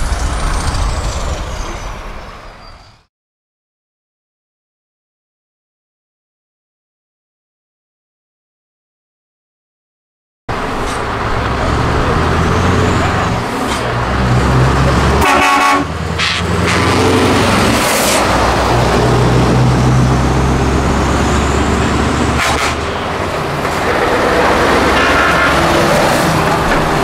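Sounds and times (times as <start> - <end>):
loud truck engines driving past: 0.0 - 3.1, 10.5 - 27.0
truck horn blast: 15.0 - 17.4, 22.3 - 23.1, 24.2 - 26.0.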